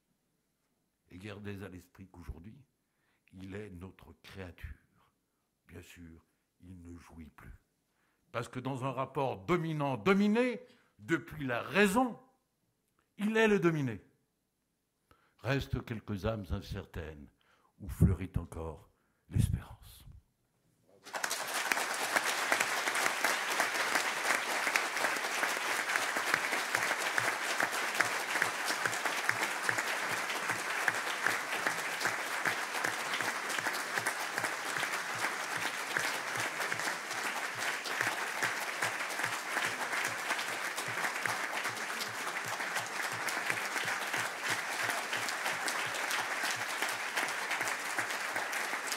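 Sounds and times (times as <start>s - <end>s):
crowd applause: 21.0s - 48.9s.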